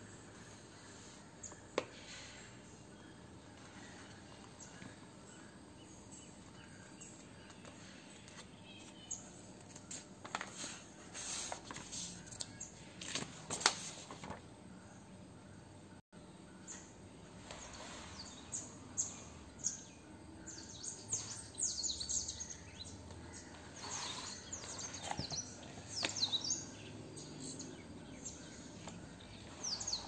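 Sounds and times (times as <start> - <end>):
book rustling and tapping: 9.6 - 10.8, 11.4 - 14.4.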